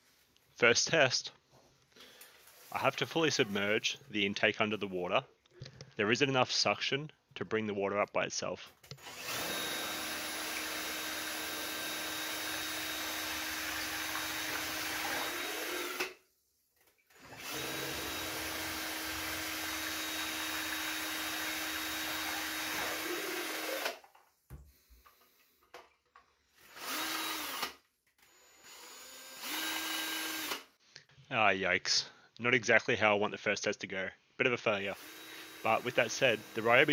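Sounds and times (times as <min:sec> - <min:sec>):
drill whining: 0:08.9 - 0:16.2, 0:17.1 - 0:24.0, 0:26.6 - 0:30.7, 0:34.9 - 0:36.9.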